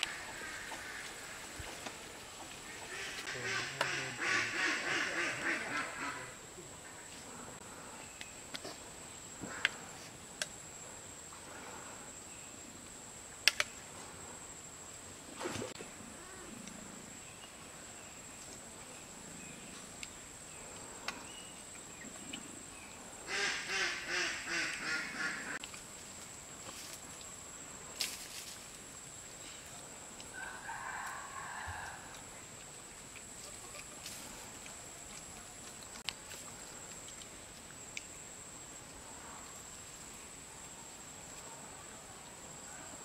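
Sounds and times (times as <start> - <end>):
ducks quacking: 2.8 - 6.4, 23.3 - 25.6.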